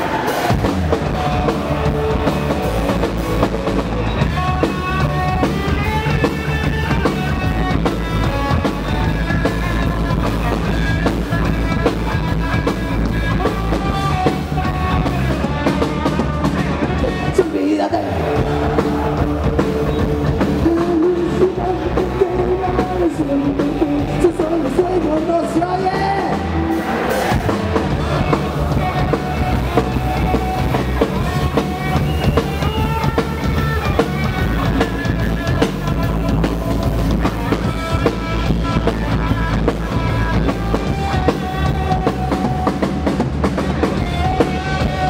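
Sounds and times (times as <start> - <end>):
drum kit: 0.0 - 45.0
guitar: 0.0 - 45.0
person singing: 13.8 - 39.4.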